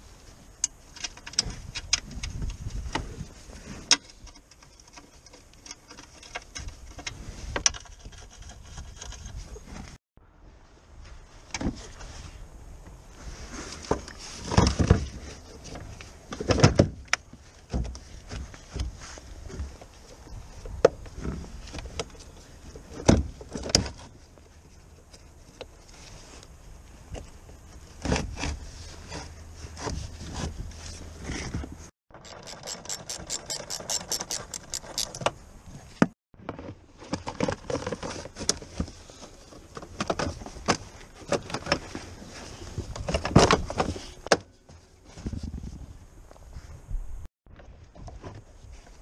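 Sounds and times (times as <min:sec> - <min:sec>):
ratchet clicking: 0:32.2 - 0:35.2.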